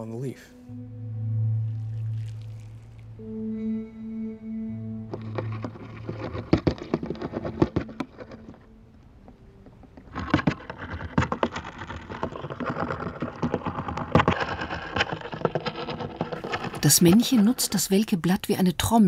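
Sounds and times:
spider drumming rapid crackling taps: 5.1 - 8.7.

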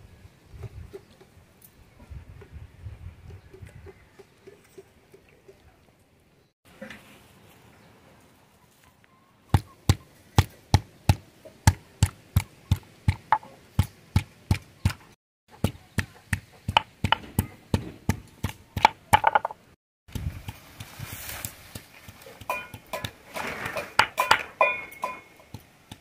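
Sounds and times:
grinding stone knocking on stone slab: 18.8 - 19.6.

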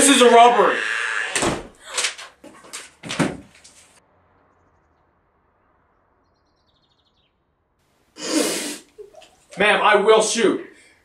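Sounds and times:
rustling: 2.0 - 4.0.

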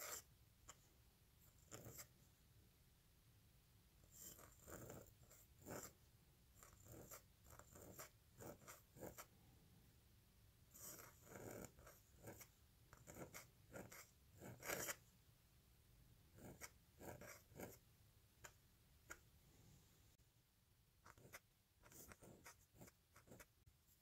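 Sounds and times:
pen nib scratching on paper: 0.0 - 0.8, 1.4 - 2.1, 4.0 - 6.0, 6.6 - 9.3, 10.7 - 15.0, 16.3 - 17.8, 21.0 - 24.0.

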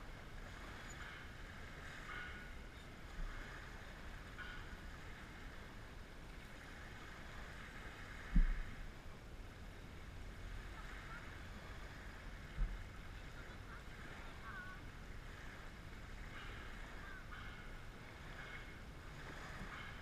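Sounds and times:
waves on a pebble beach: 0.0 - 20.0
wind rumbling on microphone: 0.0 - 20.0
low thump: 8.3 - 8.7.

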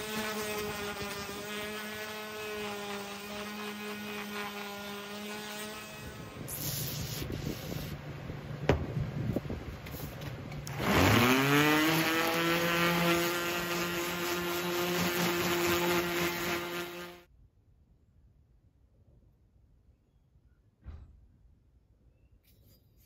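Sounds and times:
electric sander motor whine: 0.0 - 6.5, 10.6 - 17.3
rough sanding: 0.0 - 8.0, 10.7 - 17.3.

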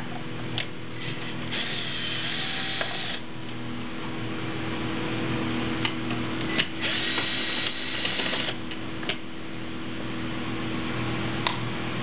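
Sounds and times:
steady low hum: 0.0 - 12.0
cordless drill running: 1.0 - 3.3, 6.6 - 8.6.

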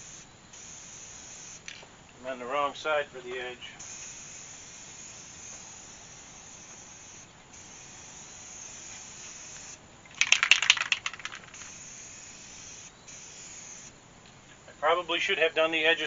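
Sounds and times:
spray can hissing: 0.0 - 1.8, 3.4 - 13.9
spray can rattling clicks: 0.6 - 1.8, 3.8 - 13.9.

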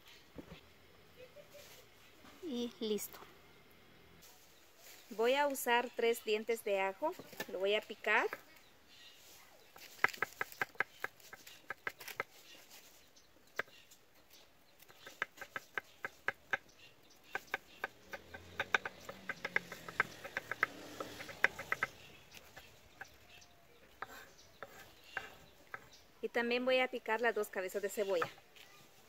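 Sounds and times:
knife chopping on wooden board: 17.3 - 22.7.

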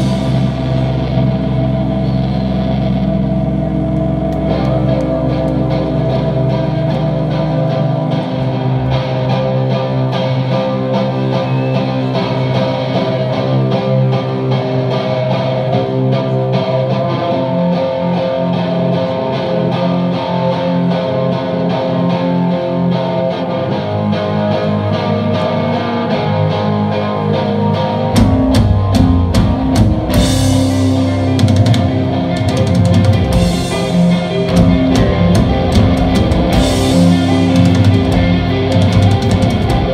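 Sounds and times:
drum kit: 0.0 - 8.2, 28.1 - 39.9
bass guitar: 0.0 - 39.9
electric guitar chords: 0.0 - 39.9.

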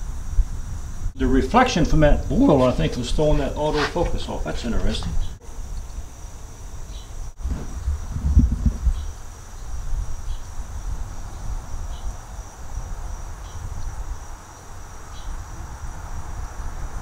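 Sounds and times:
high insect drone: 0.0 - 17.0
uneven low rumble: 7.4 - 9.2.

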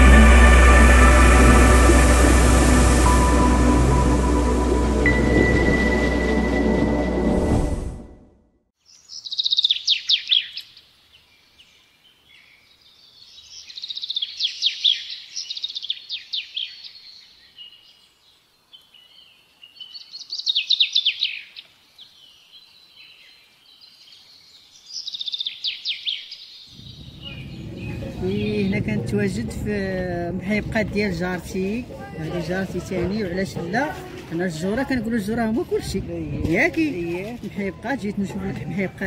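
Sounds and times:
soft bird twittering: 8.9 - 10.8, 18.8 - 29.5.

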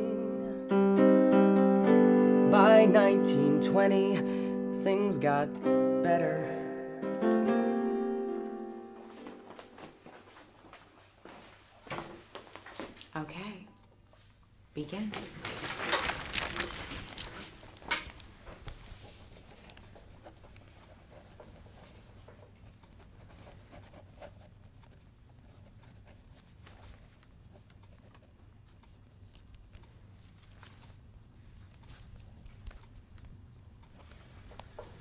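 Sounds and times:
low steady room hum: 8.3 - 35.0.

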